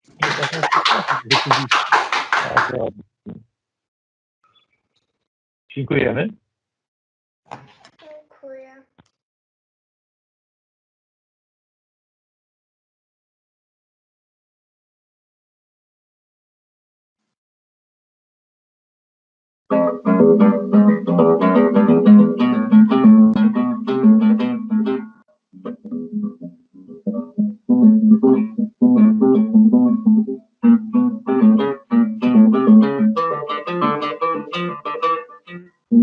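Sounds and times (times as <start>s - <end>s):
fingerstyle classical guitar: 19.7s - 36.0s.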